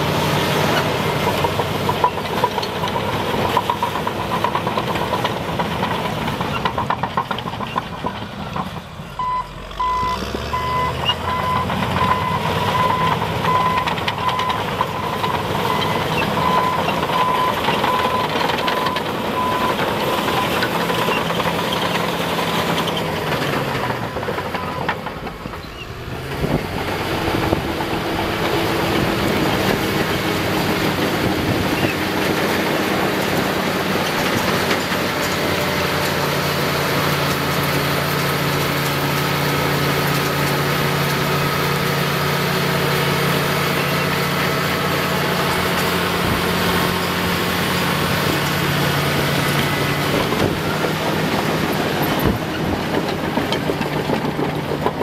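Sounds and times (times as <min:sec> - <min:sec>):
bulldozer diesel engine: 0:00.0 - 0:55.0
bulldozer pushing dirt: 0:00.0 - 0:55.0
reversing alarm beeping: 0:09.2 - 0:20.5.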